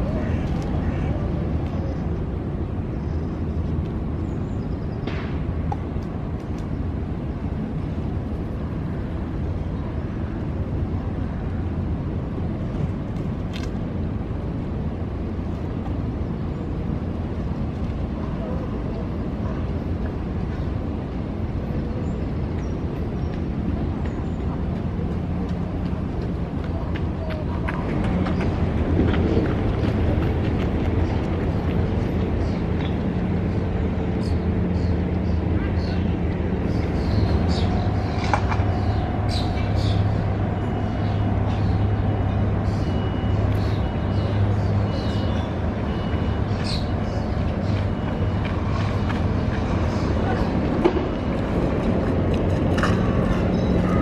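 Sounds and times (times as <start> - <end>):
low rumble of city traffic: 0.0 - 54.0.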